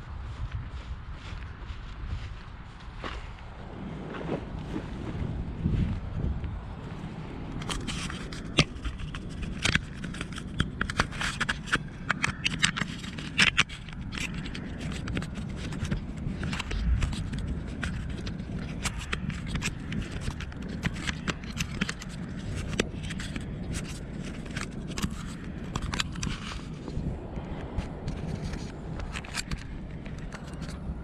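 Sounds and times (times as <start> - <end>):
low rumble: 0.0 - 31.0
handling clicks and scrapes: 7.5 - 30.9.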